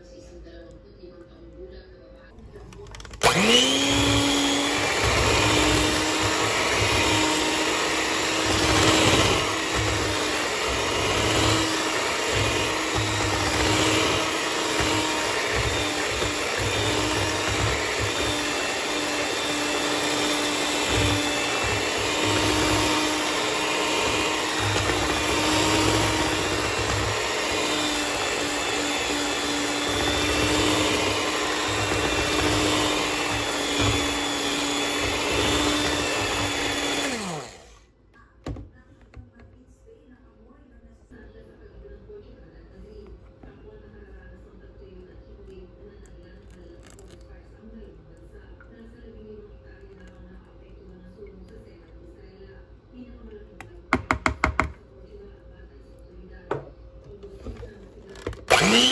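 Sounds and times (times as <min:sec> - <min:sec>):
electric hand mixer running: 0:02.9 - 0:37.8, 0:57.5 - 0:58.9.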